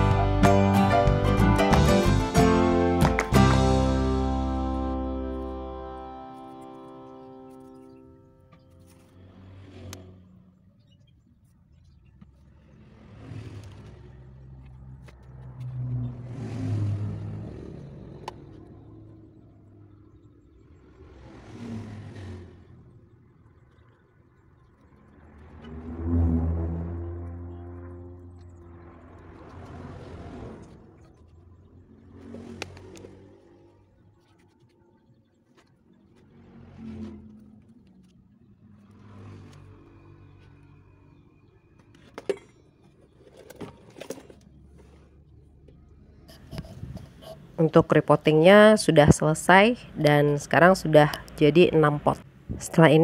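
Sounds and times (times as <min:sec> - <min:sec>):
vehicle passing by: 0:03.6 - 0:11.0, 0:12.2 - 0:34.7, 0:35.5 - 0:53.0.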